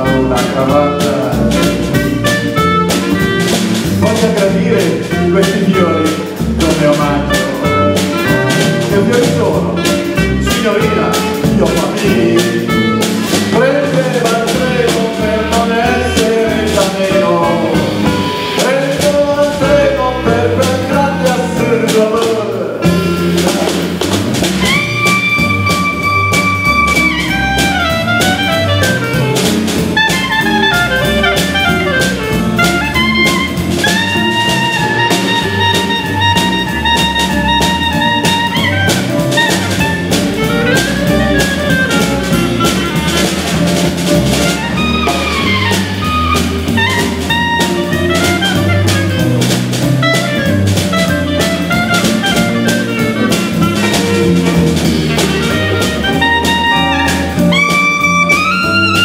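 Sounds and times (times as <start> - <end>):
clarinet melody: 0.0 - 59.0
jazz band playing: 0.0 - 59.0.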